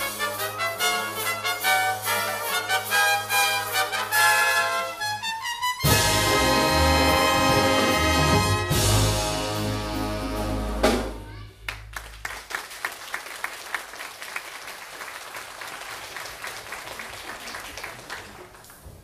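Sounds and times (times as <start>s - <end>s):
big band brass chord: 5.8s - 11.2s
audience applauding: 11.6s - 19.0s.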